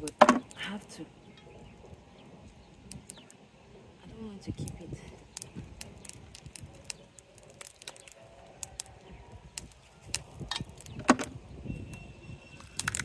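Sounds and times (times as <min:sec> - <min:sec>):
shell cracking: 0:02.8 - 0:03.4, 0:04.6 - 0:11.3, 0:12.6 - 0:13.0.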